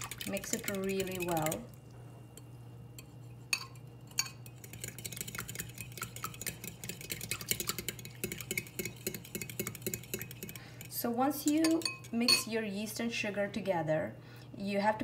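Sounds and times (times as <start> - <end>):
spoon clinking while stirring: 0.1 - 1.6, 2.4 - 12.5
spoon tapping glass bowl: 2.4 - 10.5, 11.4 - 12.5.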